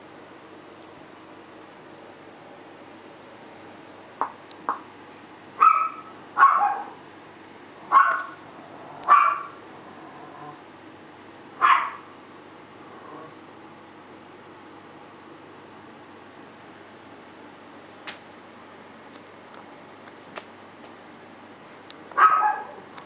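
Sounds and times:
puppies barking: 5.6 - 7.0, 7.9 - 8.4, 9.0 - 9.6, 11.6 - 12.1, 22.2 - 22.8.

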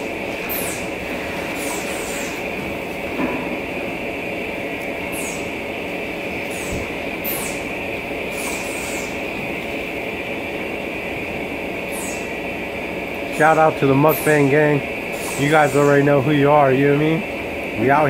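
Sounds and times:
machinery droning: 0.0 - 18.0
hiss: 0.5 - 2.4.

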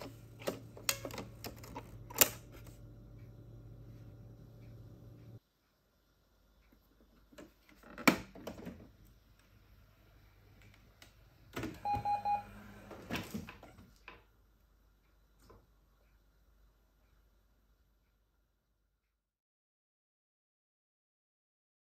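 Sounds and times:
short printer beeps: 11.8 - 12.8.

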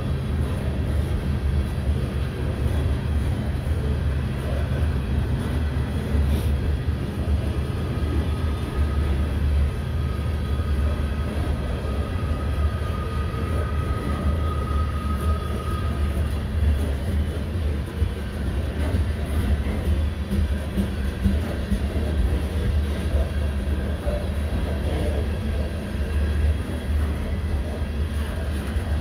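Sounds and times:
train wheels rumbling on rails: 0.0 - 29.0
faint high whine: 7.4 - 16.8.

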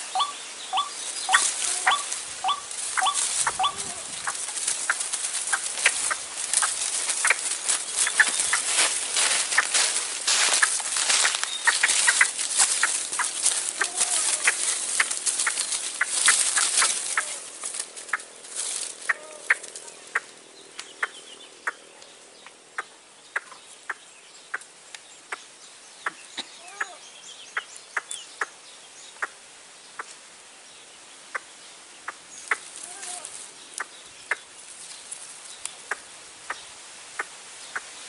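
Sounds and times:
waterhen calling: 0.0 - 20.3.

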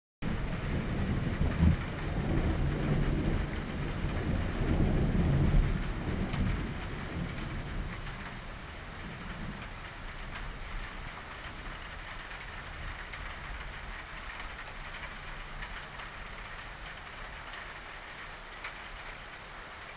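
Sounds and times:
rain hissing: 0.3 - 19.9
thunder rumbling: 0.3 - 19.9.

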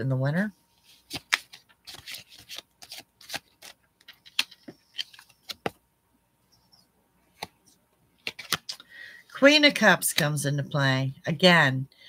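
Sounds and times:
cards snapping and rustling: 1.0 - 5.8, 8.2 - 8.8.

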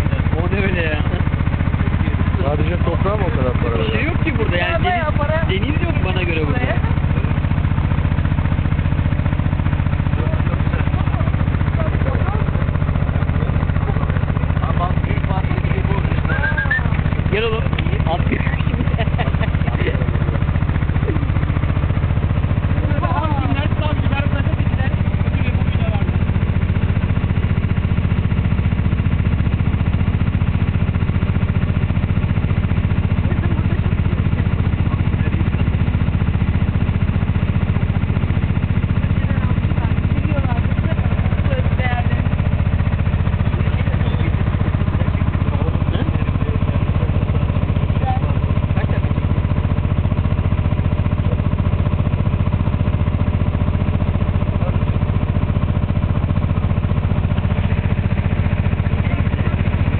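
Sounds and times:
boat engine humming: 0.0 - 59.9.

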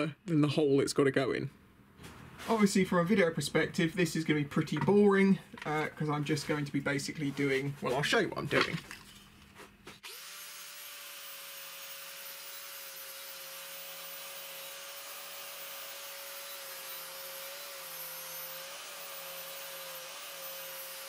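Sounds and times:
angle grinder motor whine: 10.0 - 21.0.

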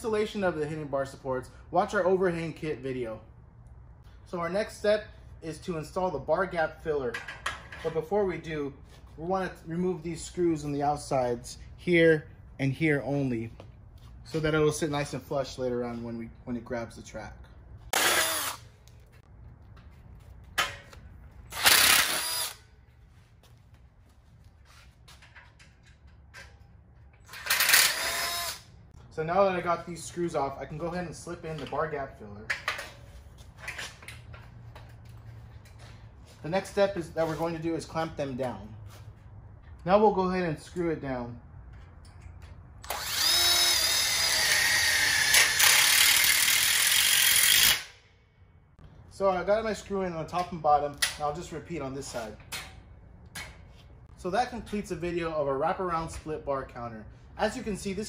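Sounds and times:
power driver driving screw into metal: 18.0 - 18.6, 21.6 - 22.6, 27.4 - 28.6
impact driver whirring: 18.0 - 18.7, 21.5 - 22.6, 27.4 - 28.7, 42.8 - 48.0.

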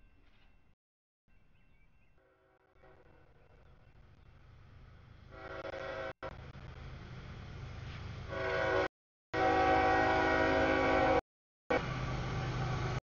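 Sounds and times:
diesel locomotive rumble: 2.8 - 13.0
train air horn blowing: 5.3 - 6.3, 8.3 - 11.9.

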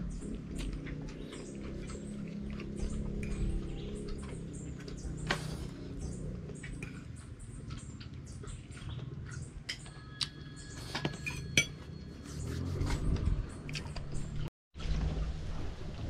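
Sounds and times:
low rumble: 0.0 - 9.2
spoon clinking on a plate: 9.7 - 12.0.

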